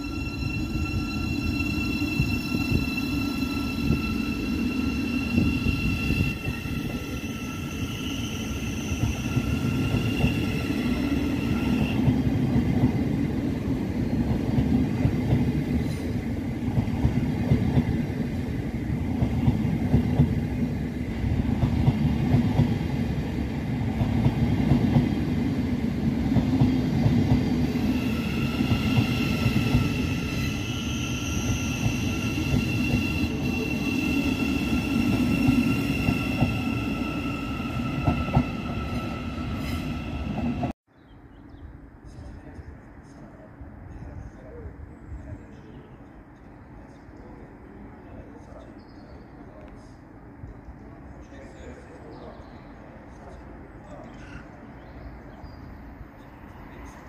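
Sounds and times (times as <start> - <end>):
train wheels rumbling on rail: 0.0 - 40.8.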